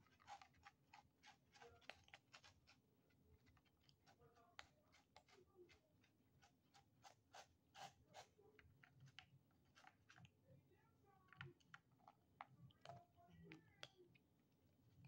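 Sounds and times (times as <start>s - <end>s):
kittens crunching kibble: 0.0s - 10.4s.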